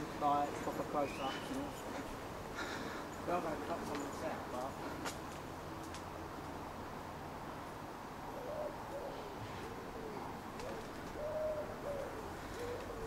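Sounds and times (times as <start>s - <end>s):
pigeon cooing: 8.3s - 13.0s.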